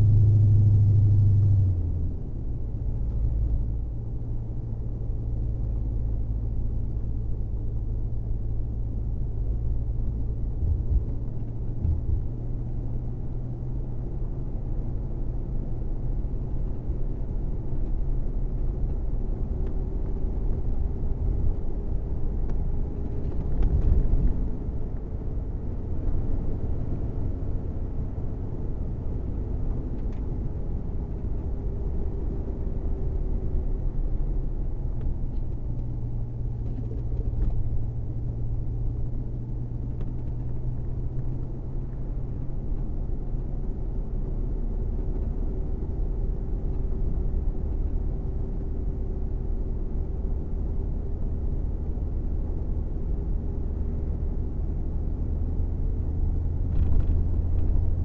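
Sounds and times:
car engine at cruise: 0.0s - 58.0s
tyre and road noise: 56.1s - 58.0s.

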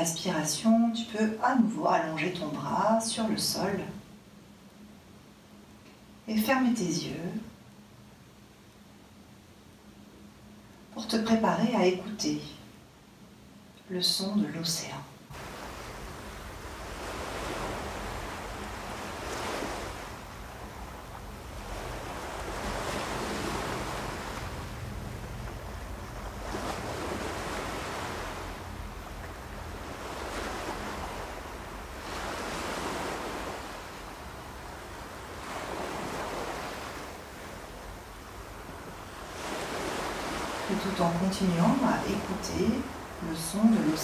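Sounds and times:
ocean waves breaking: 15.3s - 44.0s.

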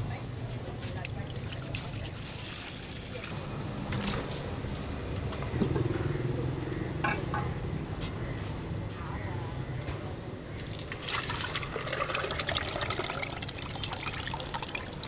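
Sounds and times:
metal pots and ladles clinking: 7.0s - 7.6s.

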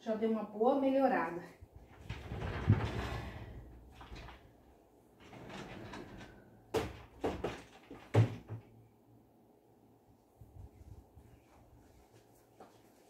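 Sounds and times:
sliding door rolling: 2.0s - 8.1s
door panels knocking: 6.7s - 8.7s.

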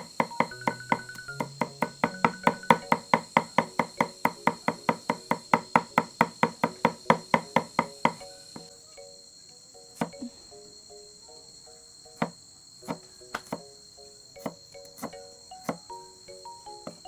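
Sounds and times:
cleaver chopping on wooden block: 0.0s - 8.2s, 12.2s - 13.6s, 14.4s - 15.9s.

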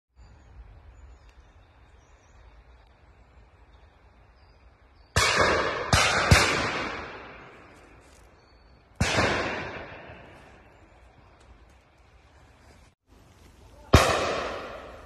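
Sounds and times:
gunshots with echo: 5.2s - 7.7s, 9.0s - 10.7s, 13.9s - 15.0s.

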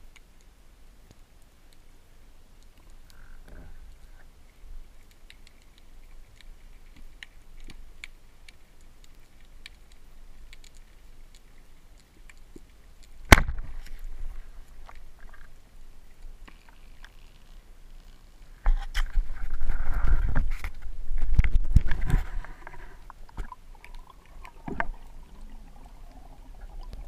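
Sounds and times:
faint underwater clicks: 0.0s - 27.0s
speargun firing underwater: 13.3s - 13.8s.

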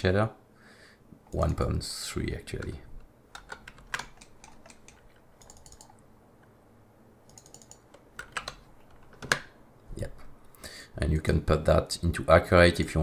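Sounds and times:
computer keyboard clicking: 3.3s - 6.0s, 7.3s - 9.5s.

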